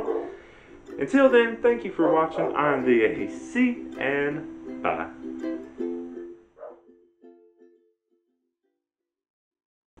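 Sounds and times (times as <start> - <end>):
ukulele chords: 0.0 - 8.0.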